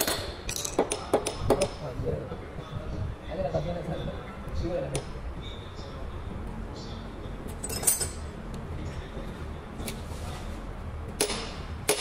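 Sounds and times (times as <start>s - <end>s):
steady low hum: 0.0s - 12.0s
metal tools clinking: 7.5s - 8.4s.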